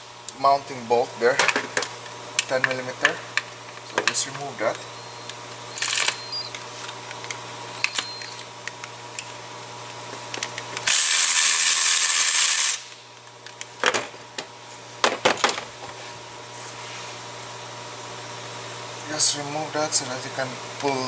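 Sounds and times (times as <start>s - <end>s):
power ratchet spinning: 5.7s - 6.6s, 10.8s - 13.0s.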